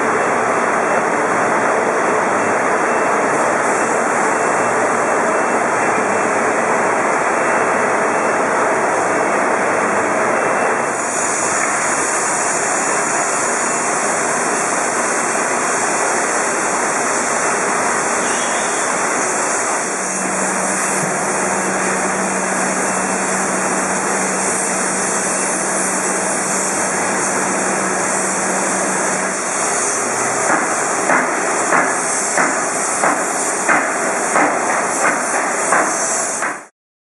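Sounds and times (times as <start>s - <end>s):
machinery hissing: 10.9s - 36.6s.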